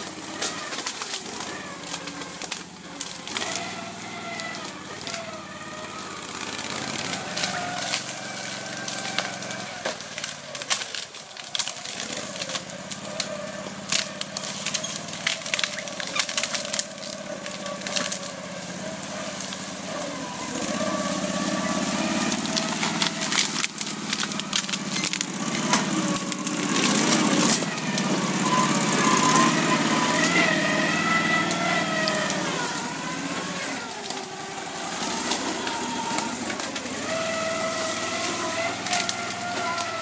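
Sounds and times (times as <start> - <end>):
branches cracking and snapping: 0.0 - 40.0
tracked vehicle engine under load: 0.0 - 40.0.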